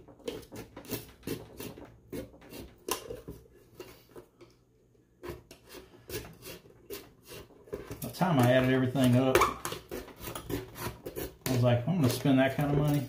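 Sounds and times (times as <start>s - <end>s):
hand tool clicking and scraping: 5.2s - 13.0s.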